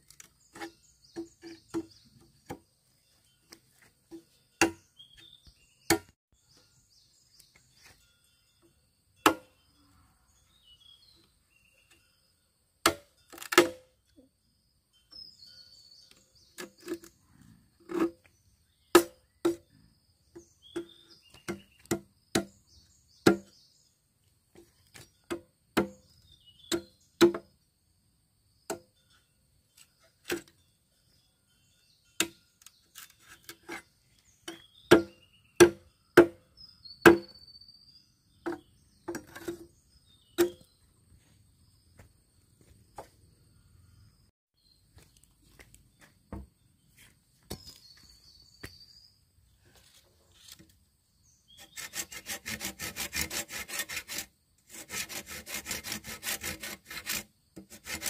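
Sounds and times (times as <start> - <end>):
birds chirping: 0.0 - 12.4, 14.9 - 25.3, 25.9 - 27.2, 29.0 - 53.0
blade chopping wood: 4.6 - 4.8, 5.8 - 6.2, 9.3 - 9.5, 12.9 - 13.8, 19.0 - 19.6, 20.8 - 22.6, 23.2 - 23.5, 25.0 - 26.1, 34.6 - 36.4, 37.1 - 37.3.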